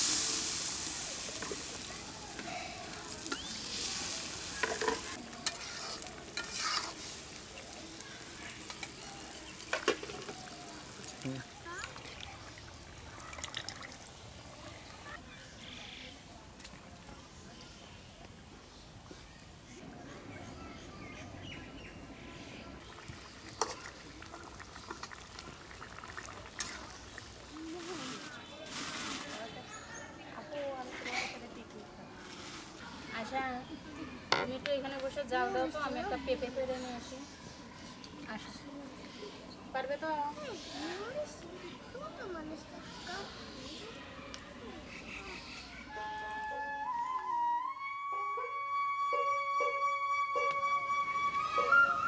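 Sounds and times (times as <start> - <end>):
sauce bubbling and sizzling in pan: 0.0 - 14.4, 22.8 - 27.6
metal spatula scraping pan: 3.3 - 7.4.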